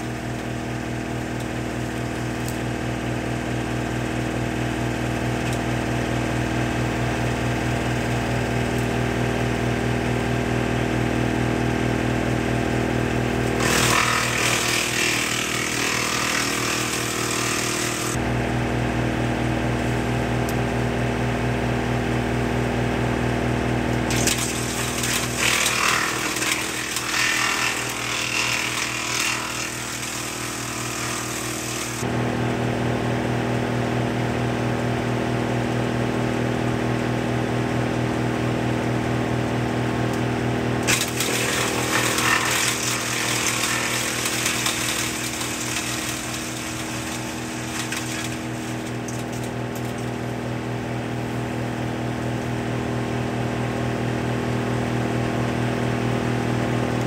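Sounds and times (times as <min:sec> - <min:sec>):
wood chipper running: 0:00.0 - 0:57.0
branches being chipped: 0:40.8 - 0:50.1.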